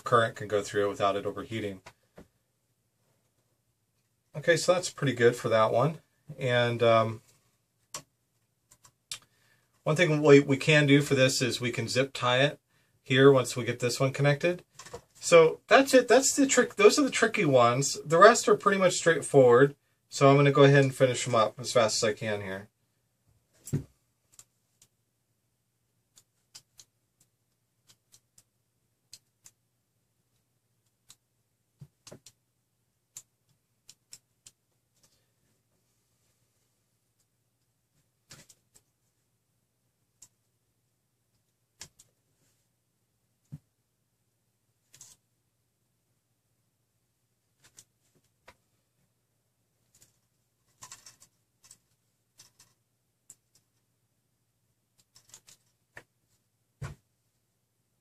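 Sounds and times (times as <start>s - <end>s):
clicks of handling small connectors: 49.9s - 53.8s, 55.0s - 56.1s.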